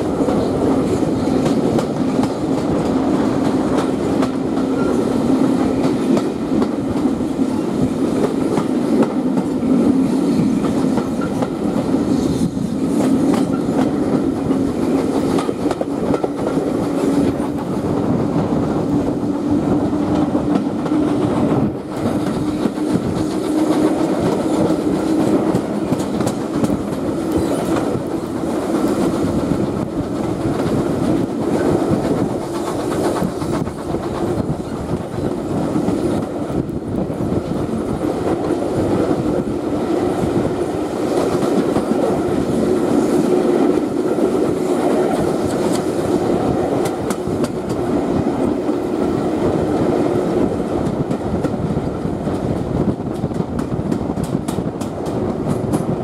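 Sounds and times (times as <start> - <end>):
wheels clacking over rail joints: 0.0 - 39.5
rushing air: 0.0 - 56.0
train wheels rolling on rail: 0.0 - 56.0.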